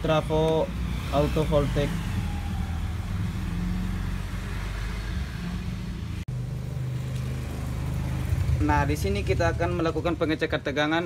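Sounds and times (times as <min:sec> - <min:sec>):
low motor hum: 0:01.9 - 0:08.6.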